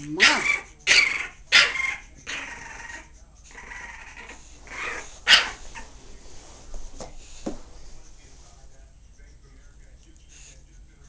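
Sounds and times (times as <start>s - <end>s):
bulldog growling: 0.0s - 5.5s.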